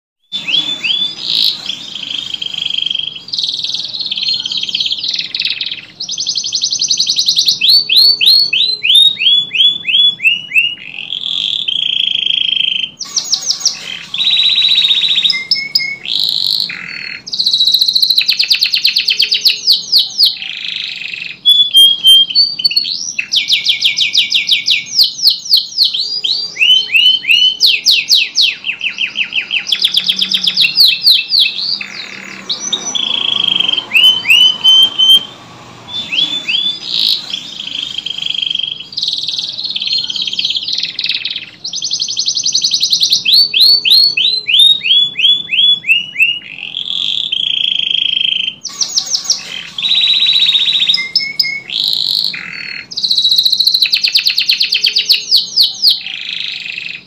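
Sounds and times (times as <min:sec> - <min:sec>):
canary singing trills: 0:00.2 - 0:57.0.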